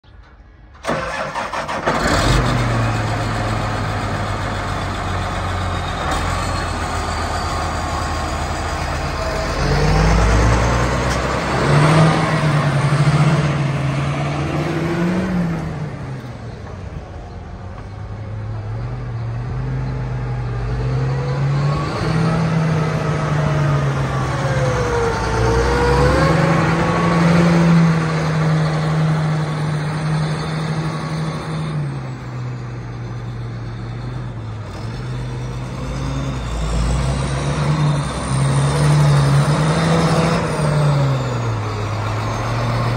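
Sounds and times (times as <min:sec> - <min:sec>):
tractor diesel engine: 0:00.0 - 0:42.9
tractor engine revving: 0:00.3 - 0:42.9.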